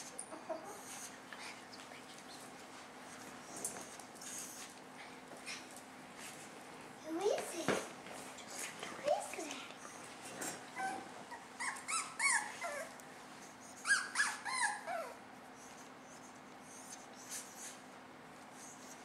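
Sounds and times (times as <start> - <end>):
dog whining: 10.7 - 13.0, 13.8 - 15.2.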